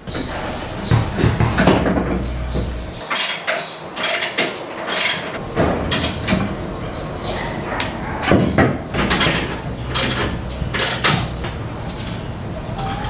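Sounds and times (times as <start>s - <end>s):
hands knocking and scraping on bumper: 0.9s - 2.8s.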